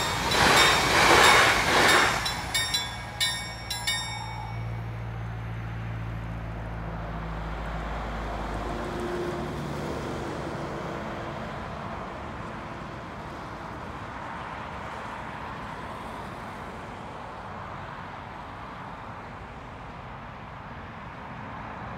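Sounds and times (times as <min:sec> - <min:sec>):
outdoor rushing background: 0:00.0 - 0:05.5.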